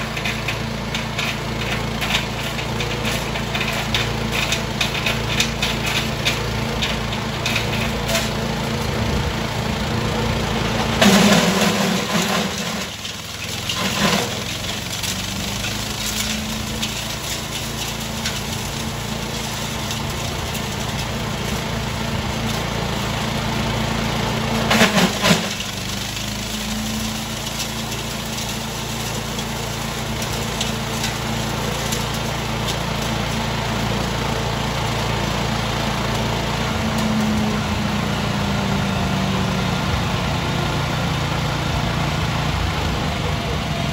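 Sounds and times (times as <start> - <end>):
chipper-shredder engine running: 0.0 - 43.9
branches being shredded: 10.6 - 37.4.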